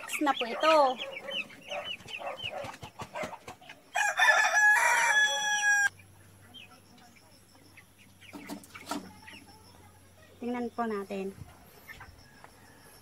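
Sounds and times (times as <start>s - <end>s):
chicken calls: 0.0s - 10.4s
rooster crowing: 3.9s - 5.9s.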